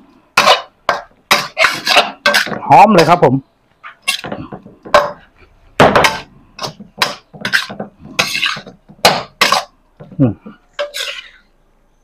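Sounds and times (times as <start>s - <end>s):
metal spatula scraping a wok: 0.4s - 2.6s, 3.8s - 5.2s, 6.0s - 9.7s, 10.7s - 11.6s
spatula clinking on metal: 10.8s - 11.4s.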